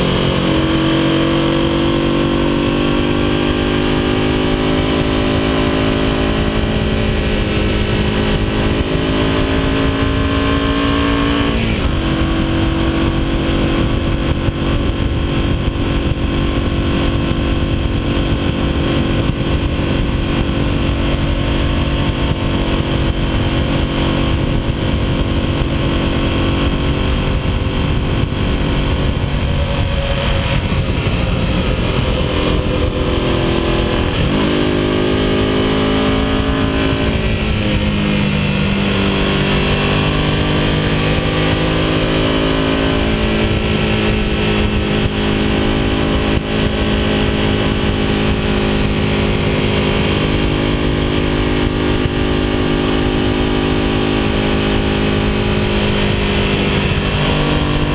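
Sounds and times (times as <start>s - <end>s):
motorcycle engine running: 0.0s - 57.9s
wind noise on microphone: 0.0s - 57.9s.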